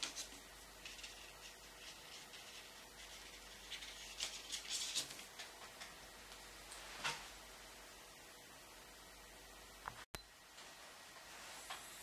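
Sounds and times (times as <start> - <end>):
paint brush strokes scratching: 0.0 - 5.3.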